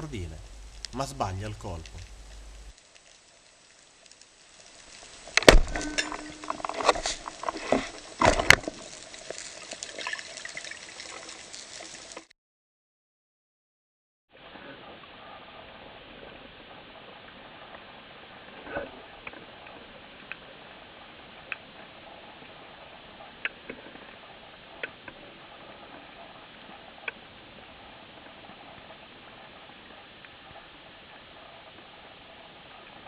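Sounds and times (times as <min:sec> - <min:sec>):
sharp underwater clicks: 0:23.2 - 0:31.9.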